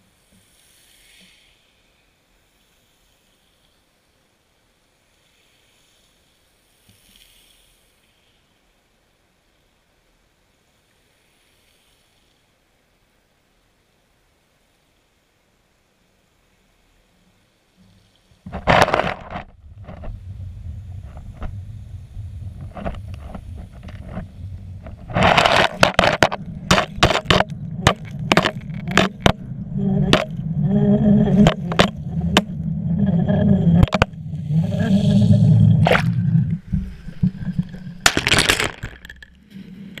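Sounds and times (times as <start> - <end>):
rush of water: 16.3 - 40.0
sharp knocks and scrapes: 18.4 - 40.0
low underwater rumble: 18.5 - 40.0
water rushing as surface breaks: 18.5 - 40.0.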